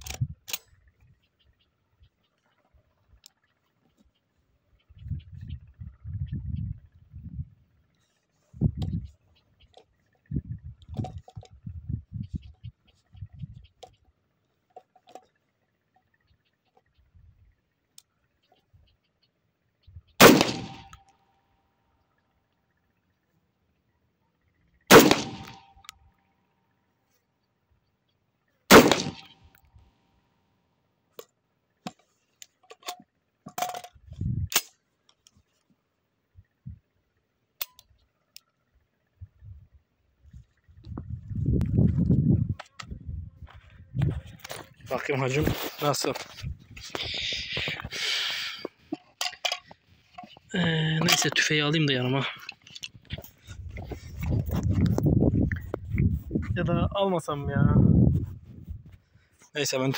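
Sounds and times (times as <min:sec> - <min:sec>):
shotgun metallic clicks: 0:00.0 - 0:00.8, 0:20.2 - 0:21.2, 0:24.9 - 0:26.0, 0:28.7 - 0:29.7, 0:31.2 - 0:35.3, 0:37.6 - 0:38.5
shotgun shot: 0:20.2 - 0:21.0, 0:24.9 - 0:25.7, 0:28.7 - 0:29.4
muffled bumps on microphone: 0:40.8 - 0:44.8, 0:53.1 - 0:56.6, 0:57.7 - 0:59.0.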